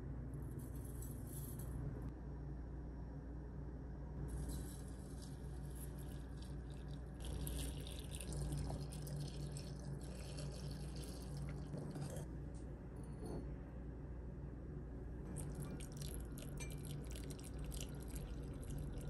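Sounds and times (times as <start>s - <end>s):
liquid pouring into a strainer: 4.4s - 12.3s, 15.3s - 19.0s.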